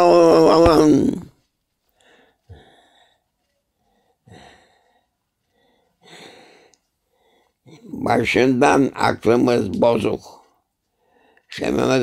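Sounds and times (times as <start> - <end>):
man breathing and sighing: 1.8 - 7.9.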